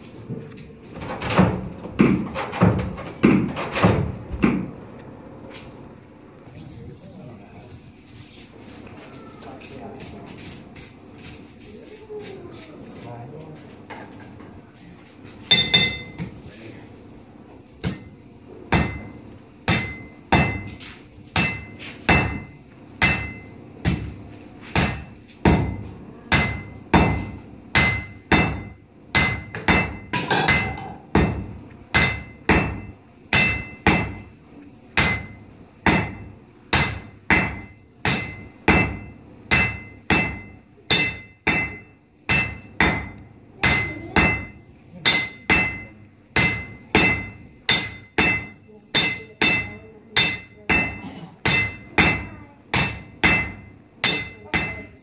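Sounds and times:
hammer striking anvil: 0:15.5 - 0:16.2, 0:17.8 - 0:20.8, 0:21.4 - 0:24.1, 0:24.8 - 0:34.3, 0:35.0 - 0:54.9.

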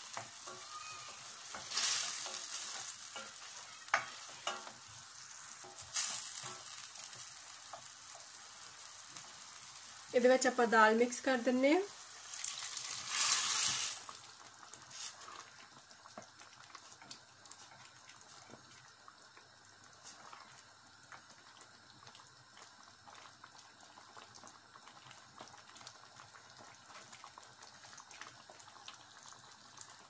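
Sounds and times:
dal simmering with faint bubbling: 0:00.0 - 0:30.0
dal poured into a steel pan: 0:12.4 - 0:14.1
wooden spoon scraping: 0:12.8 - 0:14.0.

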